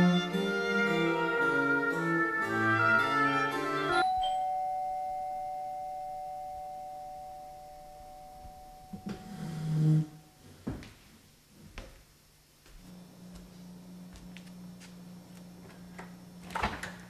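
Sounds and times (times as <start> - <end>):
doorbell chime: 3.2 - 9.5.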